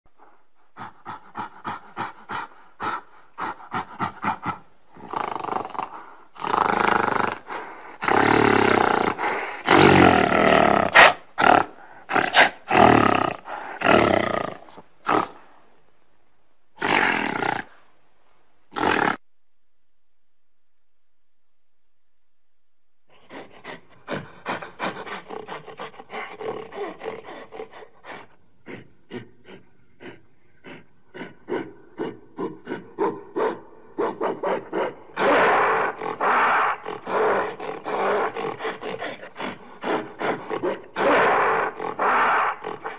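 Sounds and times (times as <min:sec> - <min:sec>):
animal grunts: 0:00.8 - 0:15.4, 0:16.8 - 0:17.8, 0:18.7 - 0:19.2, 0:23.1 - 0:42.9
animal drawn-out calls: 0:23.2 - 0:42.9.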